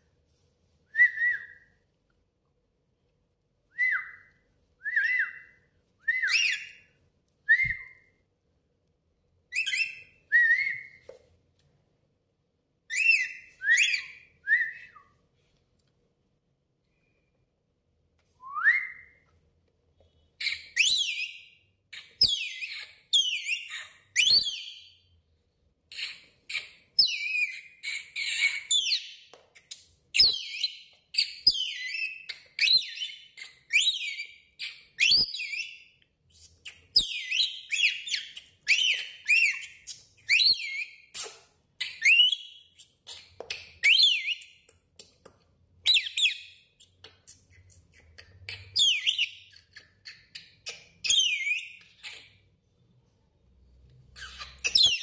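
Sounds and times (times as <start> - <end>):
lorikeet whistling and chirping: 3.8 - 6.9, 9.5 - 11.1, 12.9 - 15.1, 20.4 - 25.0, 25.9 - 44.6, 45.8 - 47.4, 48.5 - 52.4, 54.2 - 55.0.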